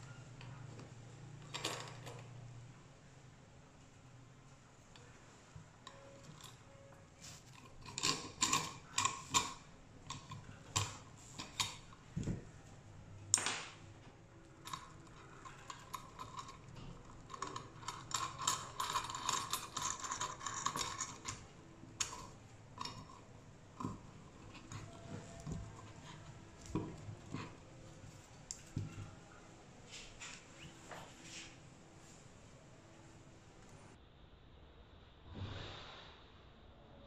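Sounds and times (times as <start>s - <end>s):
hacksaw metal clicks and rattles: 7.3s - 11.9s, 14.4s - 23.2s.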